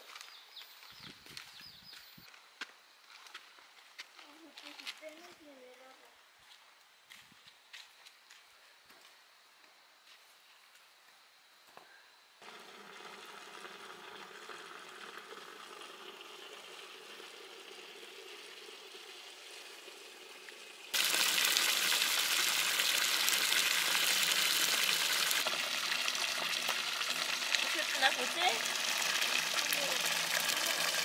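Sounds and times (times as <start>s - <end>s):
food sizzling in a hot pan: 12.4s - 31.0s.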